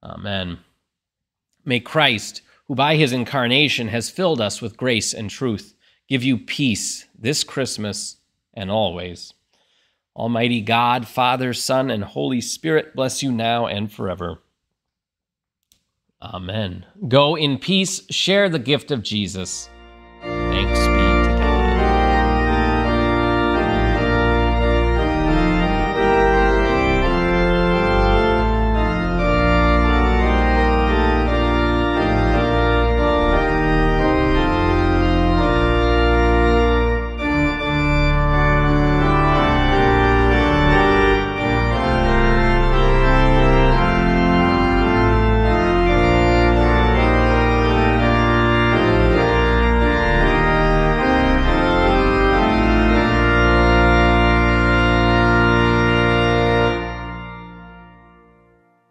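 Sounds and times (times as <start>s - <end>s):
organ playing sustained chords: 18.4s - 58.9s.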